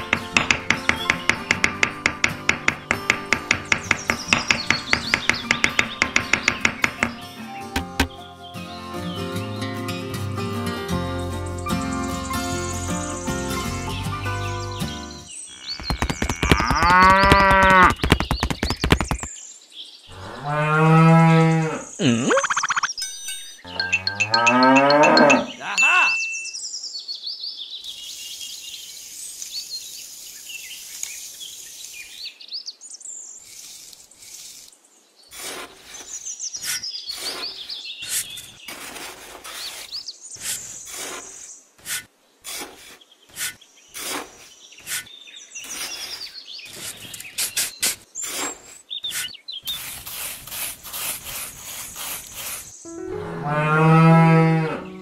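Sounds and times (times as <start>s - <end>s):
high bird chirps: 0.0s - 8.3s, 21.9s - 27.1s, 44.6s - 49.9s
cow mooing: 23.7s - 25.8s, 52.9s - 55.0s.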